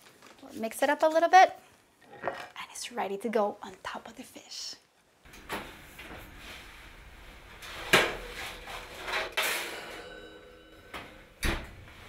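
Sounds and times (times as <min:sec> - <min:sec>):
oven door opening: 0:07.6 - 0:12.0
metal pan sliding off rack: 0:07.7 - 0:11.2
metal clank: 0:09.0 - 0:11.6.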